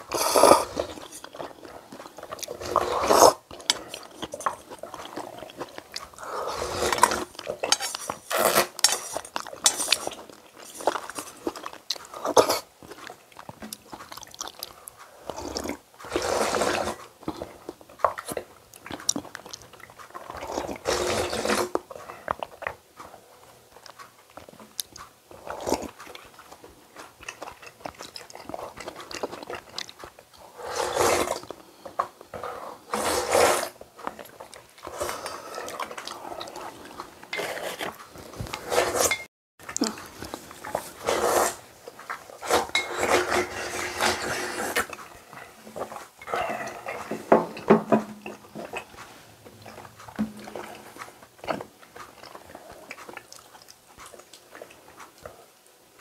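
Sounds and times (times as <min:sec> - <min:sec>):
person chewing: 0:00.0 - 0:56.0
person slurping noodles: 0:00.1 - 0:01.8, 0:02.4 - 0:11.5, 0:15.2 - 0:17.1, 0:20.3 - 0:21.8, 0:30.4 - 0:31.5, 0:32.4 - 0:33.8, 0:34.9 - 0:41.7, 0:42.4 - 0:45.2.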